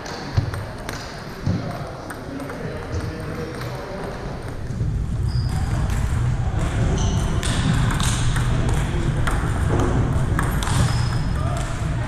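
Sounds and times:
low rumble of hall: 0:04.6 - 0:12.0.

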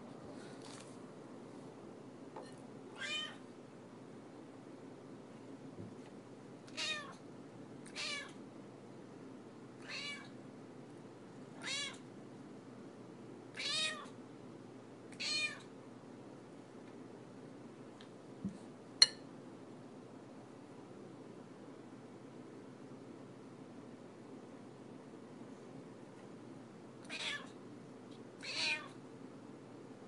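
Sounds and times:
cat meowing: 0:02.9 - 0:03.4, 0:06.7 - 0:07.2, 0:07.8 - 0:08.4, 0:09.8 - 0:10.4, 0:11.6 - 0:12.0, 0:13.5 - 0:14.2, 0:15.1 - 0:15.7, 0:27.0 - 0:27.6, 0:28.4 - 0:29.0.

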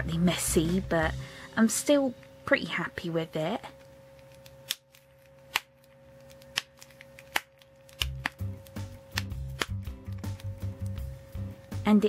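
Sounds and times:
background music with low bass: 0:00.0 - 0:01.6, 0:07.9 - 0:12.0
paper crackling when squeezed: 0:04.2 - 0:10.8.

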